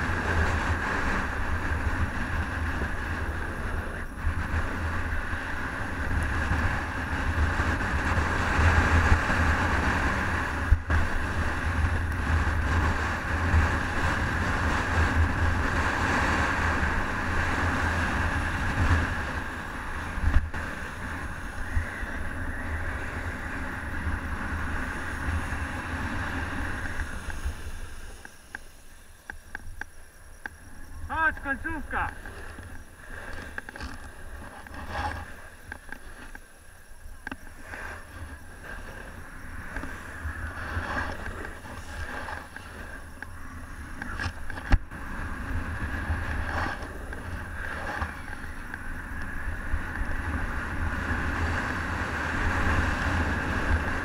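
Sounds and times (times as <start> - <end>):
wind buffeting microphone: 0.0 - 54.0
sliding scrape on packed snow: 37.5 - 43.1, 45.2 - 48.6.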